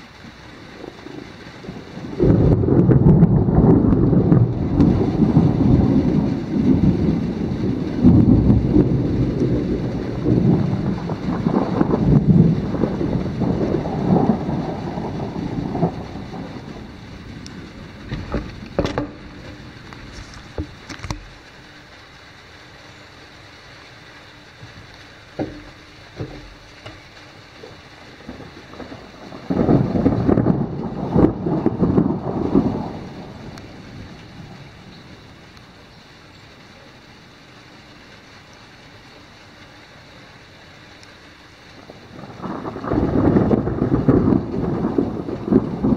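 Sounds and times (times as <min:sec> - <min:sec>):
thunder rumbling: 0:00.0 - 0:21.8, 0:24.6 - 0:37.3, 0:41.0 - 0:45.9
steady rain falling: 0:00.0 - 0:45.9
heavy drops tapping: 0:17.4 - 0:21.4, 0:24.6 - 0:27.2.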